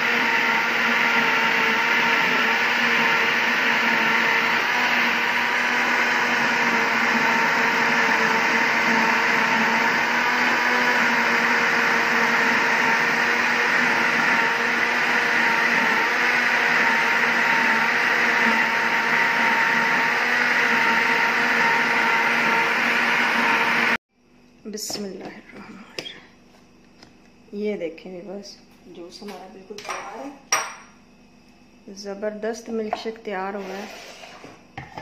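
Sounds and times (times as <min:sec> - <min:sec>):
blender motor humming: 0:00.0 - 0:24.0.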